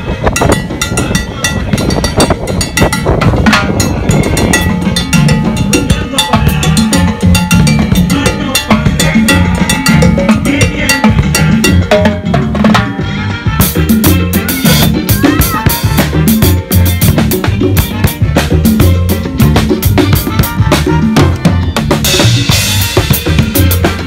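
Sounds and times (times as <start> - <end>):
low bass notes: 0.0 - 24.0
timbales cymbals and bass drum: 13.6 - 24.0.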